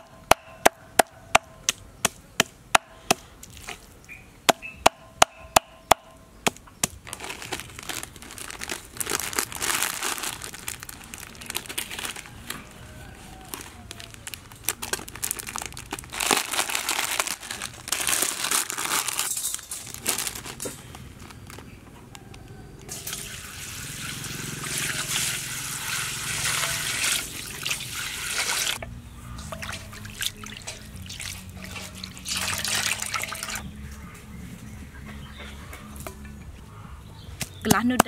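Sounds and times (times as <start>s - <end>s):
plastic bag crinkling: 7.0s - 21.8s
water pouring into metal bowl: 22.9s - 28.8s, 29.4s - 33.6s
water streaming from squeezed noodles: 23.0s - 28.8s, 29.5s - 33.6s.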